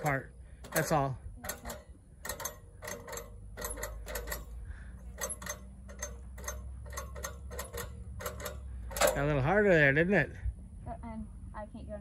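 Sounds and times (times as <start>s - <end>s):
hand winch ratchet clicking: 0.0s - 9.6s.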